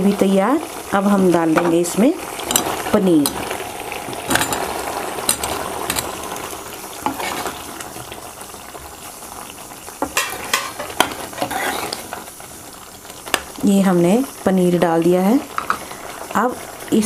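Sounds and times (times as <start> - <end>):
bubbling gravy hiss: 0.0 - 17.0
spatula scraping and knocking pan: 2.4 - 6.2, 7.0 - 8.2, 10.0 - 12.2.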